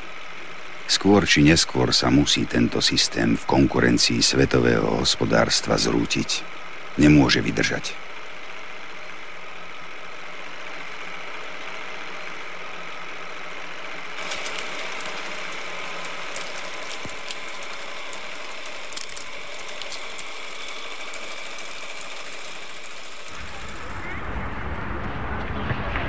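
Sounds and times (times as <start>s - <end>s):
film soundtrack hiss: 0.0s - 25.0s
clicks and crackles: 14.2s - 24.0s.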